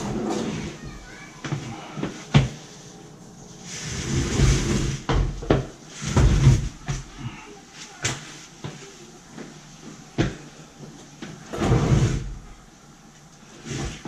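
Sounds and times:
dishwasher scraping across cardboard: 0.0 - 2.9, 3.6 - 7.4, 11.5 - 12.5, 13.5 - 14.0.

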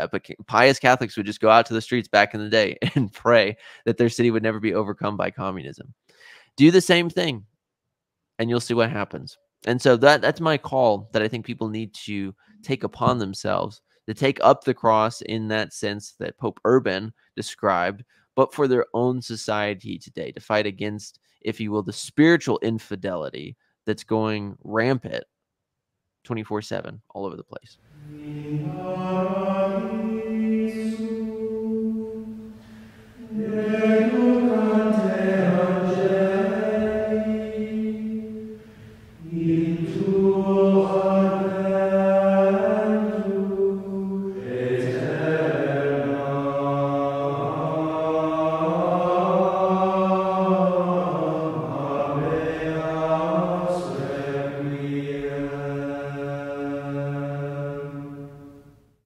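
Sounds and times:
voices singing slow chant: 27.9 - 58.7.

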